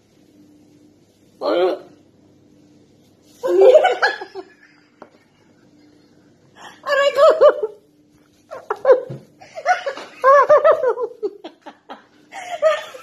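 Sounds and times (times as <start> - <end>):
women laughing heartily: 3.5 - 6.2, 8.5 - 13.0.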